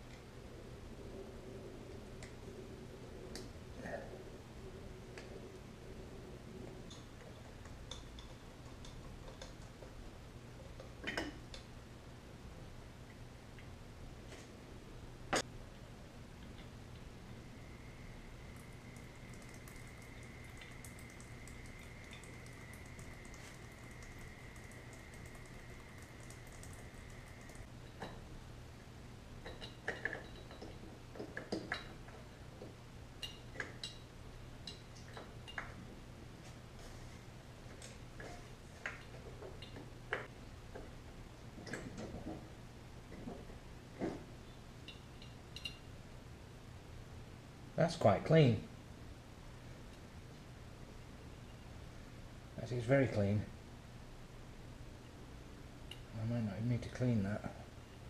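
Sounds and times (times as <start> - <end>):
low steady hum: 0.0 - 58.0
small metallic clicks and taps: 6.9 - 10.0.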